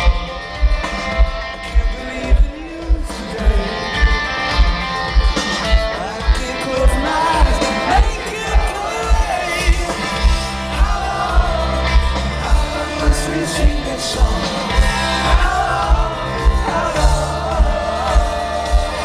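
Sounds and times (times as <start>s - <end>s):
person singing: 0.0s - 5.0s, 5.7s - 19.0s
live band playing amplified music: 0.0s - 19.0s.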